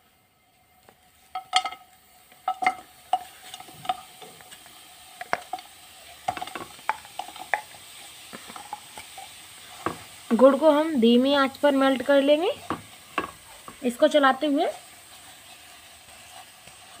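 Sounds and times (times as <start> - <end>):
faint steady hiss: 0.0 - 17.0
lumps dropping into pan: 1.3 - 10.6, 11.5 - 14.0.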